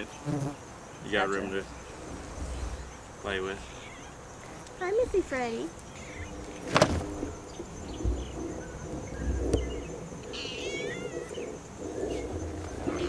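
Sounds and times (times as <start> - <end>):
high insect drone: 0.0 - 13.0
cat meowing: 3.6 - 4.2, 10.3 - 11.4.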